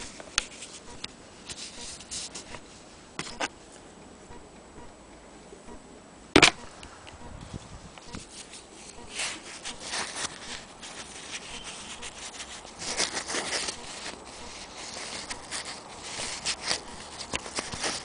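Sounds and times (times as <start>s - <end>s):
camera handling noise: 6.4s - 6.9s.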